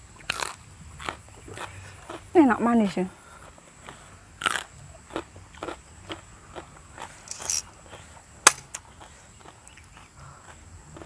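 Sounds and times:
crunching and chewing food: 0.1 - 11.0
sharp click: 8.5 - 8.8.

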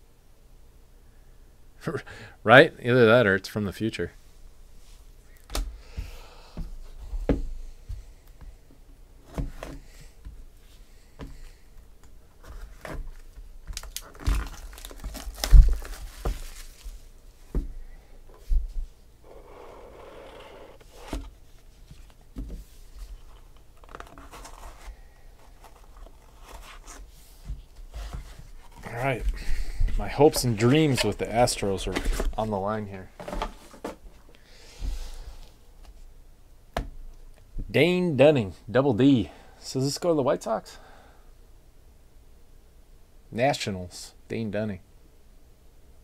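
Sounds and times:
cardboard crinkling and tearing: 12.5 - 17.1, 23.2 - 27.1.

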